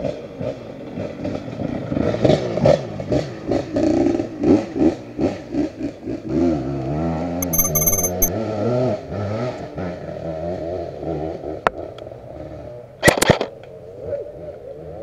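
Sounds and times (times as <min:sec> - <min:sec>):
sharp click: 0:07.4 - 0:08.3.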